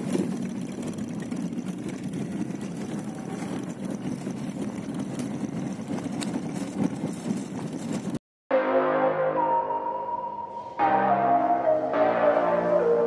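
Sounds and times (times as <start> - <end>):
car rumbling on gravel road: 0.0 - 8.2.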